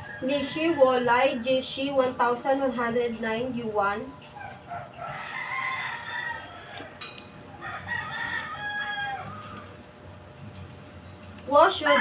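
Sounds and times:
rooster crowing: 0:00.0 - 0:01.7, 0:04.4 - 0:09.8, 0:11.8 - 0:12.0.

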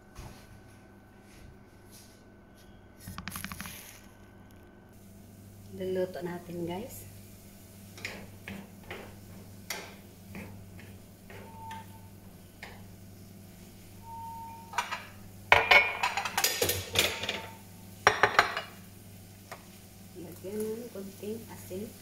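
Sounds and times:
steady low hum: 0:00.0 - 0:15.9.

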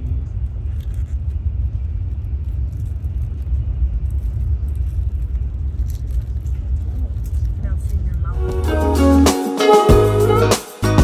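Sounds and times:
train cabin rumble: 0:00.0 - 0:08.8.

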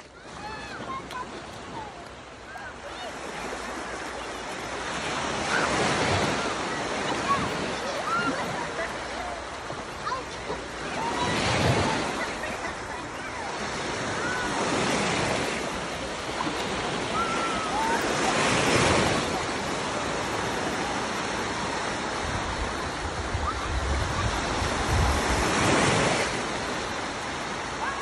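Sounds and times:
small waves breaking: 0:00.0 - 0:28.0
wind buffeting microphone: 0:22.0 - 0:26.3.

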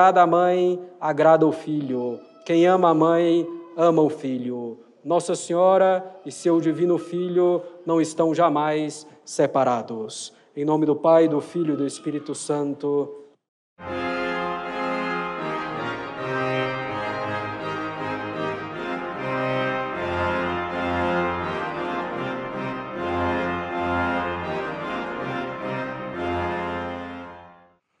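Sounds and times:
organ music: 0:13.8 - 0:27.8.

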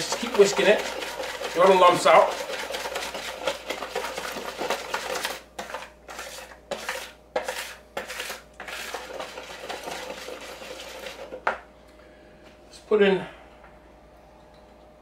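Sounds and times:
wire whisk beating batter in bowl: 0:00.0 - 0:11.6.

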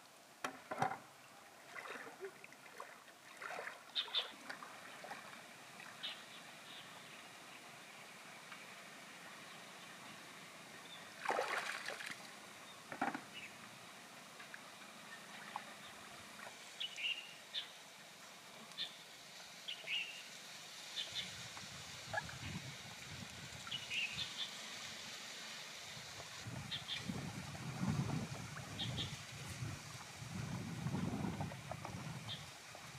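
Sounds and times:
water splashing: 0:01.6 - 0:06.2, 0:11.2 - 0:12.3.

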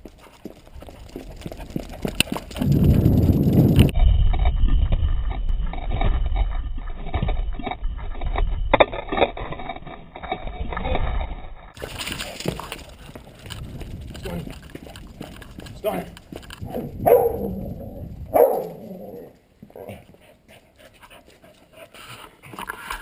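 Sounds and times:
low rumbling wind: 0:00.0 - 0:20.2
taps and scrapes: 0:19.6 - 0:23.0.

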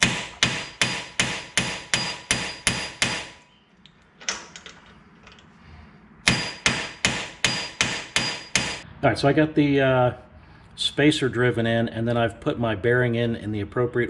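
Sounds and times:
hammer striking metal punch: 0:00.0 - 0:03.4, 0:06.2 - 0:08.8.

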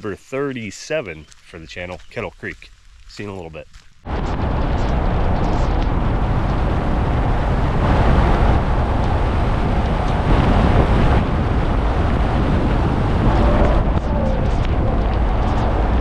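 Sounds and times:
wind buffeting microphone: 0:04.0 - 0:16.0.

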